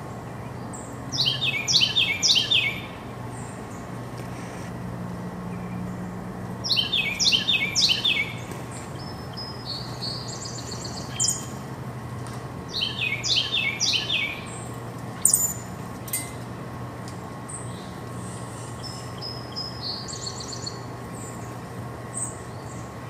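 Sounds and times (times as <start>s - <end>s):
songbirds singing and calling: 0.0s - 4.5s, 5.4s - 11.7s, 12.6s - 16.4s, 17.2s - 23.0s.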